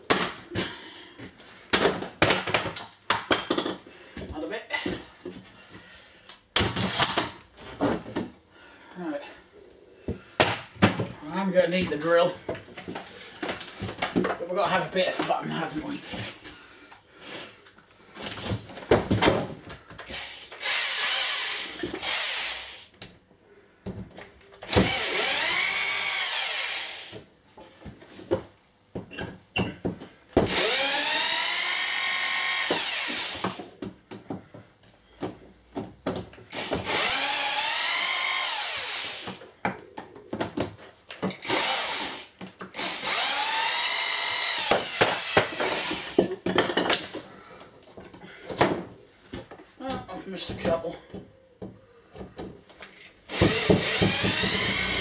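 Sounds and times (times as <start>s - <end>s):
power drill whining: 20.1s - 22.9s, 24.7s - 27.2s, 30.5s - 33.7s, 36.5s - 39.4s, 41.4s - 46.2s, 53.3s - 55.0s.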